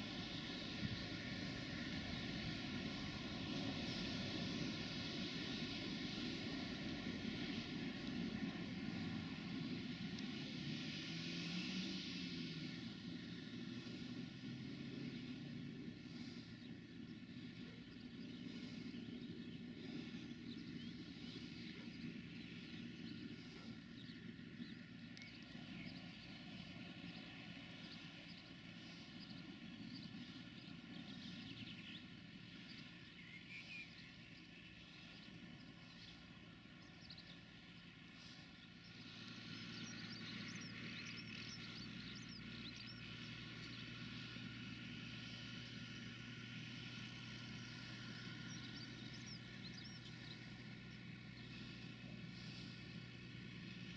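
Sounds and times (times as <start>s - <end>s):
low even hum: 0.0s - 53.9s
tractor engines droning: 0.0s - 53.9s
bird chirps: 16.6s - 43.8s, 47.8s - 52.8s.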